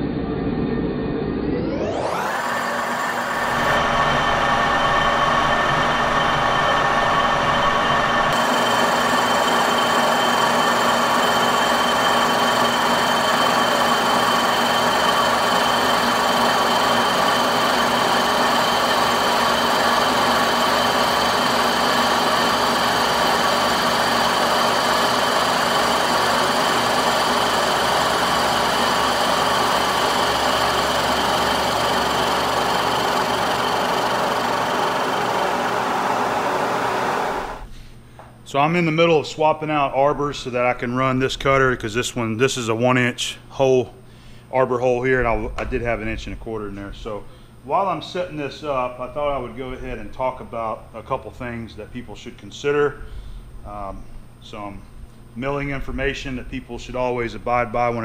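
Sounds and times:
milling machine cutting metal: 1.6 - 37.7.

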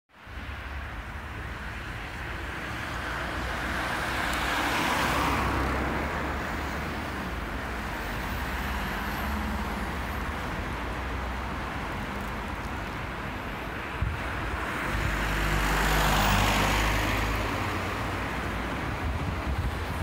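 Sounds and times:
low rumble of traffic: 0.1 - 20.0
car passing close by: 2.6 - 7.5, 14.0 - 20.0.

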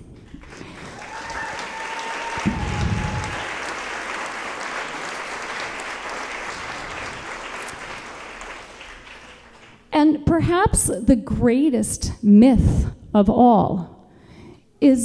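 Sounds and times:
audience applauding: 0.1 - 9.9.

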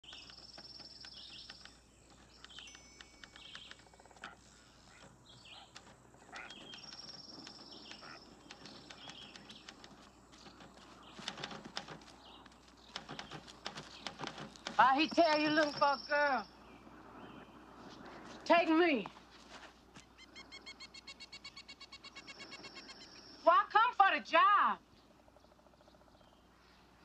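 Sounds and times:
typewriter keys clicking: 0.0 - 3.8, 6.6 - 12.1
low insect hum: 0.0 - 18.5, 19.9 - 23.5, 24.8 - 27.0
birds trilling and chirping: 0.0 - 18.9, 19.8 - 23.6, 24.8 - 27.0.

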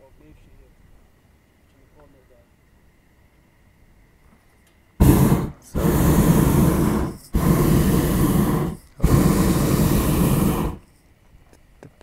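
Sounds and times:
propane burner blasts: 5.0 - 10.9.

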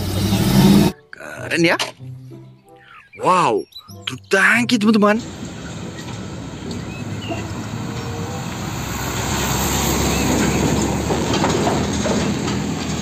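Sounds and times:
diesel truck driving past: 0.0 - 1.0, 5.2 - 13.0
tyre and road noise: 0.0 - 1.0, 4.8 - 13.0.

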